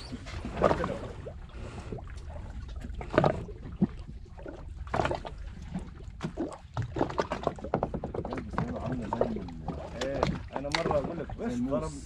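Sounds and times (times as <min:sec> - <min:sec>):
water splashing against boat hull: 0:00.0 - 0:12.0.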